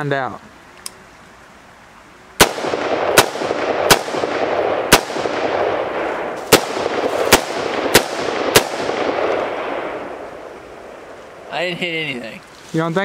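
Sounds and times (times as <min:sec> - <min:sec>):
rifle shots with echo: 0:02.4 - 0:11.0.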